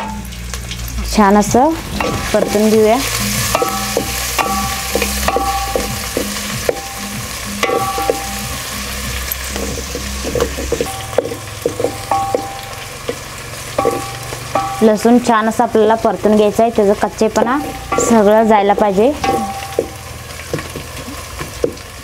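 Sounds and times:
garlic sizzling in hot oil: 0.0 - 22.0.

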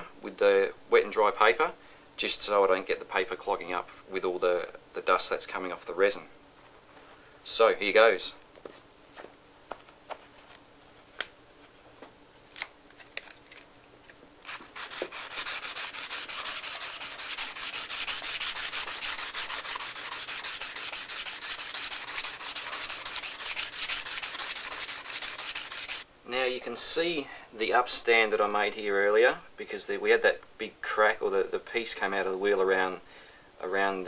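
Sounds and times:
hand sanding with sandpaper: 14.5 - 26.1.

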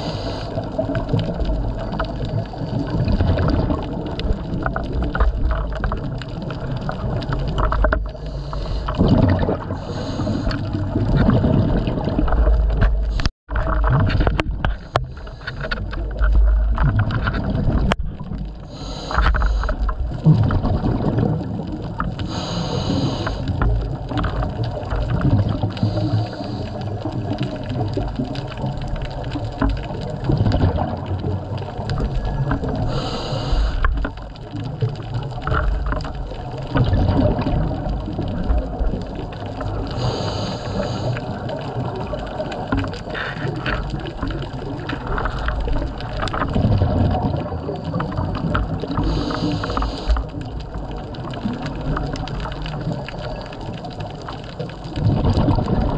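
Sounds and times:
regulator inhalation hiss: 0.0 - 0.6, 18.7 - 19.7, 22.3 - 23.5, 32.9 - 33.9, 40.0 - 41.2, 49.0 - 50.1
gurgling exhaust bubbles: 0.0 - 55.9.

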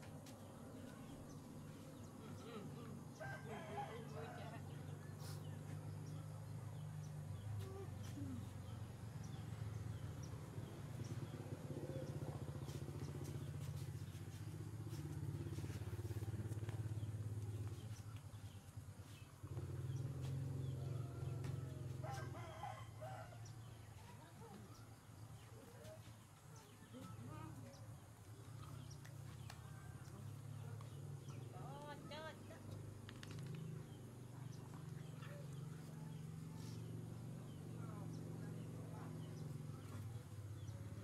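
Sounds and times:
rooster crowing: 3.2 - 4.7, 20.8 - 23.6.

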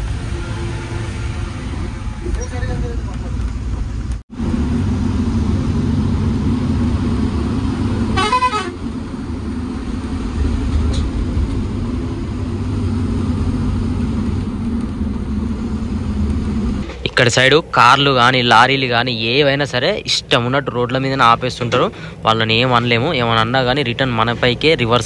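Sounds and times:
vehicle horn honking: 0.0 - 2.8, 8.1 - 8.9
diesel engine droning: 0.0 - 25.0.

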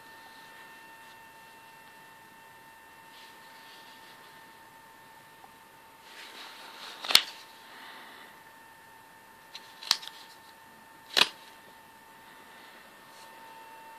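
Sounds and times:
plastic crinkling: 6.1 - 7.5, 9.5 - 11.6.

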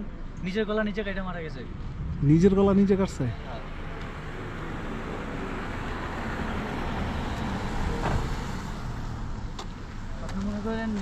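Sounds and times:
road vehicle rumble: 0.0 - 11.0.

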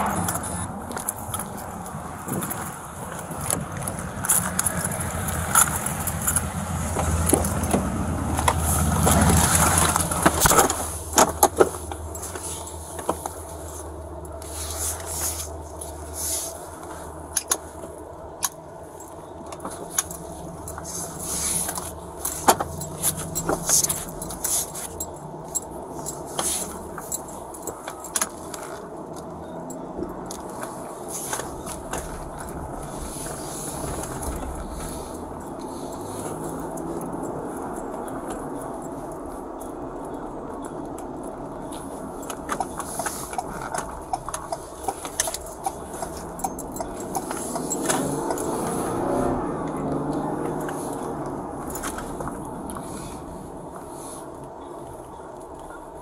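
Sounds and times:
small clicks and jingles: 0.2 - 56.0
clothing and gear rustling: 0.4 - 18.0, 18.9 - 29.8, 30.4 - 37.6, 41.6 - 49.4.

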